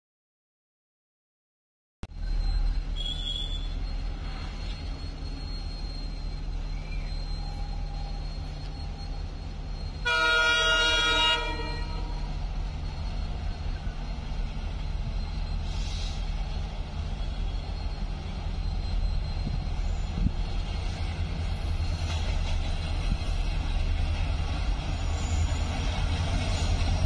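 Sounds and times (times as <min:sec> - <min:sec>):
train rumbling: 0:02.1 - 0:27.0
locomotive horn blast: 0:10.0 - 0:12.3.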